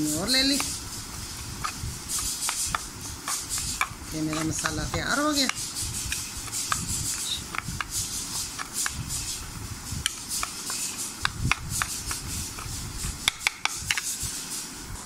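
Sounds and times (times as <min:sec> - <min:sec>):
spoon scraping ceramic bowl: 0:00.1 - 0:09.4.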